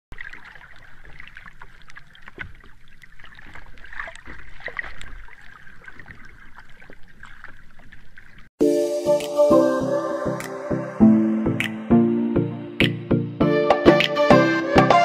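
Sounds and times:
water sloshing and bubbling: 0.1 - 8.5
loud music: 8.6 - 15.0.

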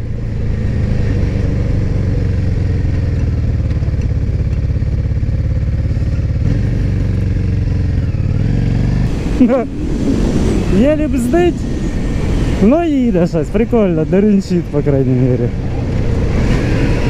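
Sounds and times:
motorcycle engine running: 0.0 - 9.1.

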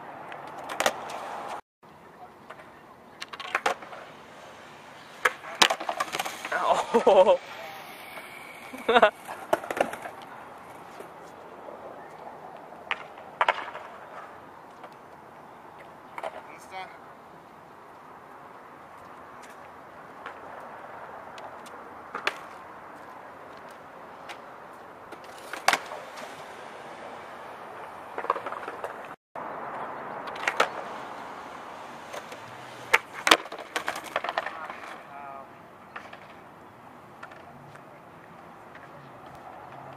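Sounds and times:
skateboard wheels rolling on concrete: 0.0 - 39.9
steady background noise: 0.0 - 39.9
skateboard clacking and landing: 0.3 - 1.6, 2.5 - 6.8, 7.4 - 11.1, 12.8 - 14.2, 25.1 - 29.2, 30.2 - 35.0
skateboard clattering in a fall: 2.5 - 11.2, 12.8 - 14.9, 25.1 - 29.2, 30.2 - 35.2.

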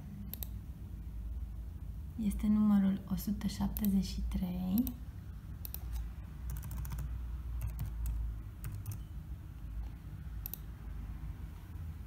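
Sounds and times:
keyboard typing: 5.6 - 9.1, 10.4 - 10.7.

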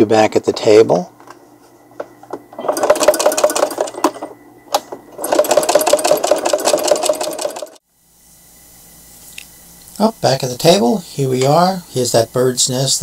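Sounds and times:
sewing machine stitching: 2.6 - 4.2, 5.2 - 7.8.

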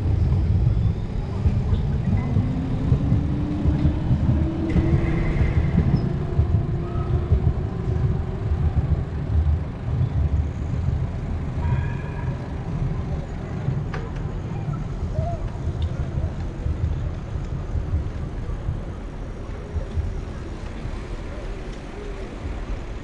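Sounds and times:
wind buffeting microphone: 0.0 - 13.9
road rumble: 0.0 - 23.0.

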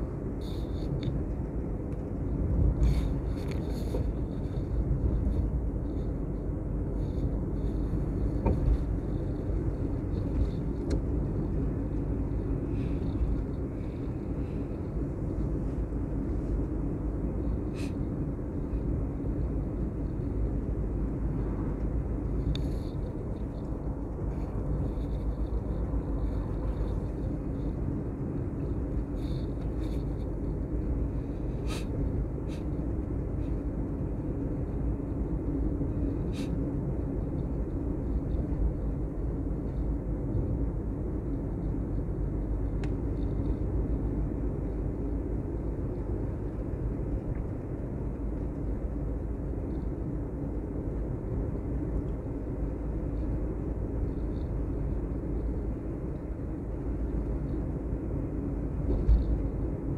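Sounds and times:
vehicle rumbling along road: 0.0 - 59.9.

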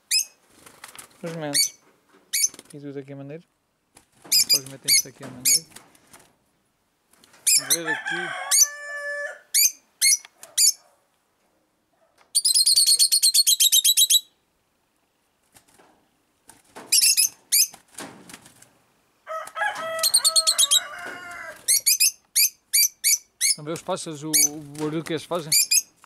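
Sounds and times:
lovebirds chirping shrilly: 0.0 - 0.4, 1.4 - 2.7, 4.2 - 5.8, 7.4 - 10.8, 12.3 - 14.4, 16.9 - 17.8, 19.8 - 26.0
rooster crowing: 7.5 - 9.5, 19.2 - 21.8.

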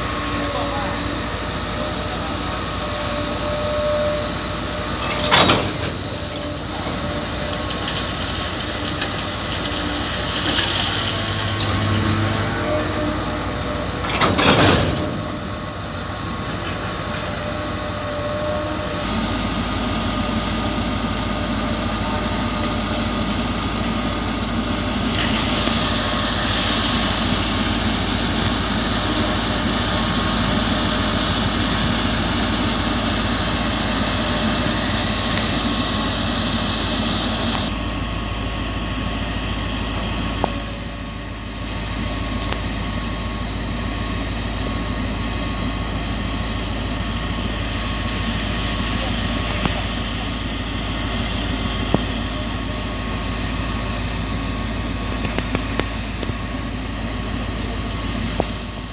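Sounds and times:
diesel engine running: 0.0 - 58.9
high steady whine: 0.0 - 58.9
loud metal clanks: 4.9 - 17.1.

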